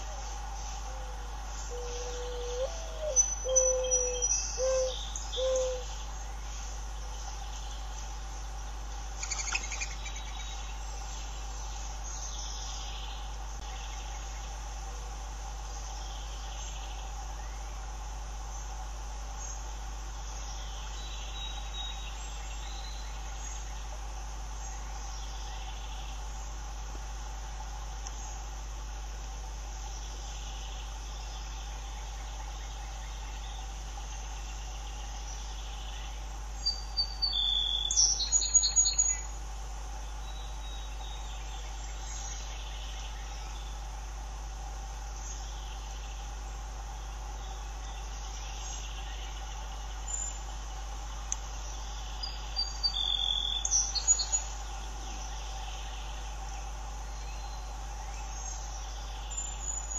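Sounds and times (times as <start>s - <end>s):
bird cooing: 0.0s - 6.0s
constant low hum: 0.0s - 59.9s
crickets and insects droning: 0.0s - 59.9s.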